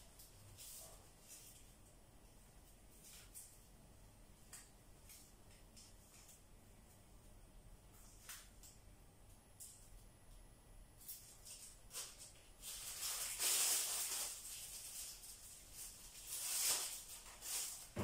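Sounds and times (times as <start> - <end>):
plastic bag rustling: 11.0 - 18.0.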